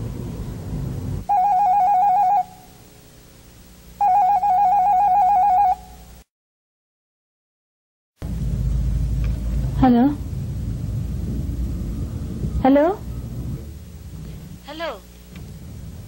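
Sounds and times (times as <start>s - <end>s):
low rumble: 0.0s - 1.3s, 8.2s - 16.0s
telephone ringing with warbling trill: 1.3s - 2.6s, 4.0s - 5.9s.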